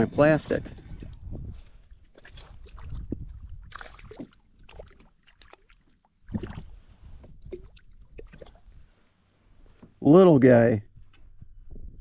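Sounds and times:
fish splashing at surface: 2.1 - 8.6.

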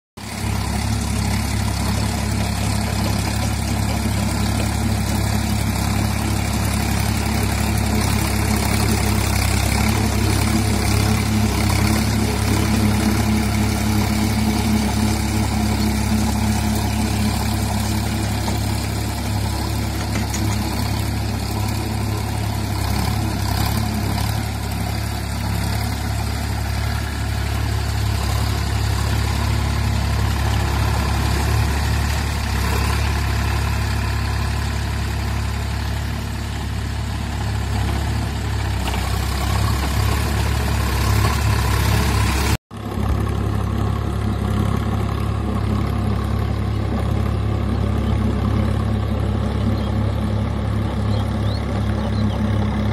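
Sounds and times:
tractor diesel engine under load: 0.2 - 52.9.

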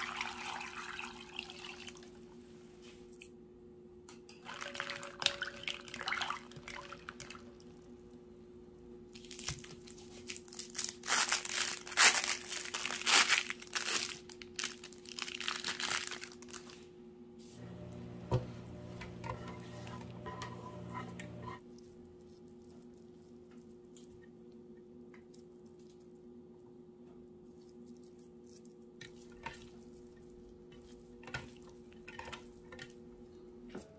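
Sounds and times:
plastic film crinkling: 9.1 - 16.9.

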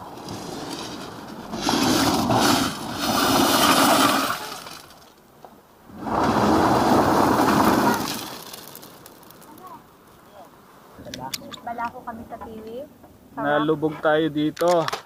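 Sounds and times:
wheels spinning in pebbles: 0.0 - 5.3, 5.9 - 10.4.

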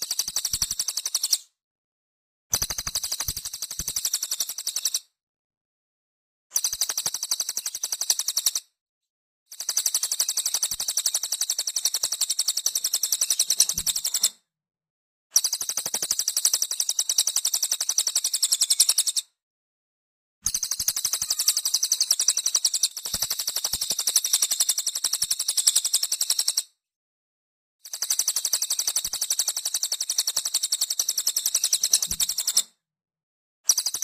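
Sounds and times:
songbird trilling: 21.0 - 23.0.

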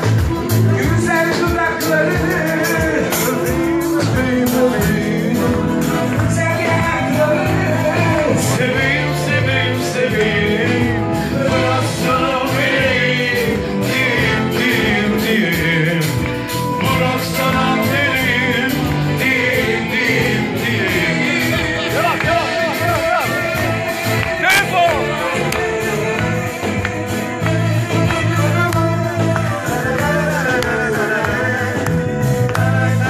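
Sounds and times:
bass guitar: 0.0 - 33.0
drum kit: 0.0 - 33.0
person singing: 0.0 - 33.0.

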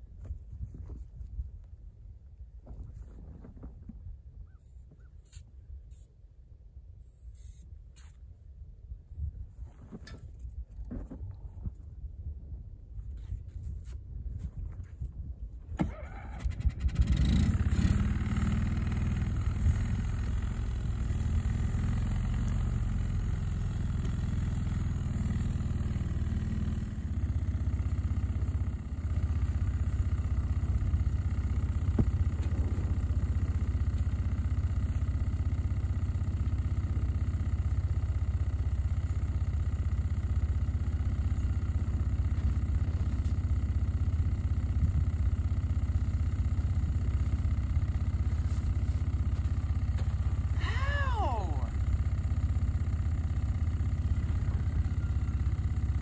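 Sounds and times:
small vehicle engine running: 15.8 - 56.0.

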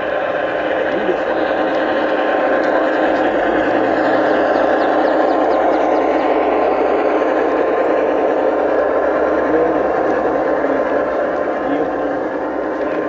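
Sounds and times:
model train wheels rolling on track: 0.0 - 13.0.

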